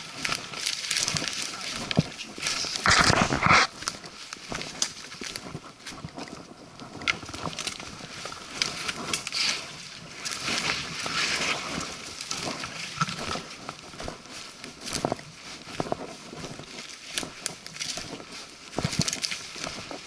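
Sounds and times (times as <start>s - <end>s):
branches rustling and scraping: 0.0s - 20.0s
footsteps crunching through leaves: 0.0s - 20.0s.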